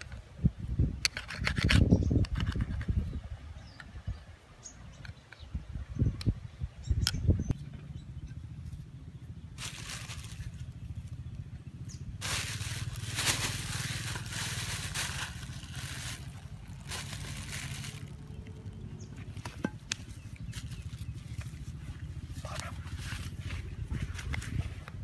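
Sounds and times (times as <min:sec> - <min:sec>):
plastic bag crinkling: 0:09.6 - 0:10.6, 0:12.2 - 0:18.4.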